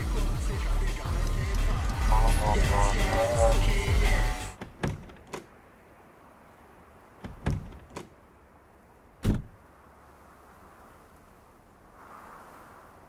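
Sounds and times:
music: 0.0 - 4.6
dull knocks or thuds: 4.6 - 5.5, 7.2 - 8.1, 9.2 - 9.6.

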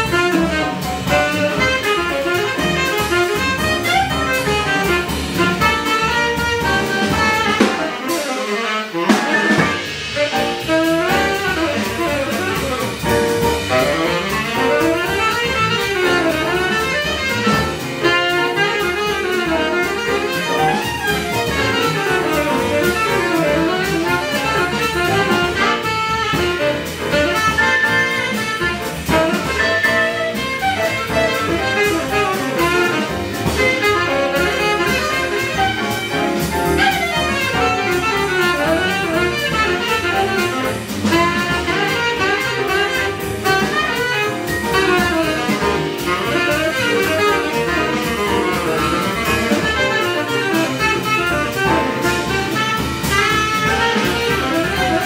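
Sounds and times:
drum kit: 0.0 - 55.0
jazz band playing: 0.0 - 55.0
saxophone line: 0.0 - 55.0.

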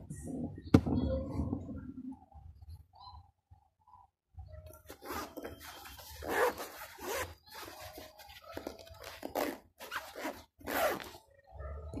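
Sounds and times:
zipper running back and forth: 4.9 - 11.2.

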